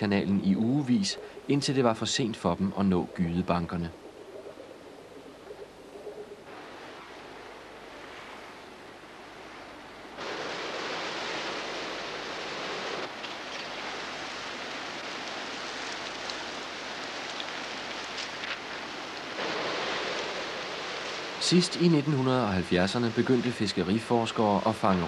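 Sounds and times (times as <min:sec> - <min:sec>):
turbulent river water rushing: 0:06.5 - 0:25.0.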